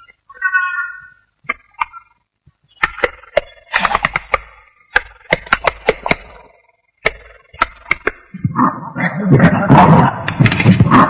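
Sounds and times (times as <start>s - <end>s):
sharp clacks and cracks: 2.8s - 8.3s.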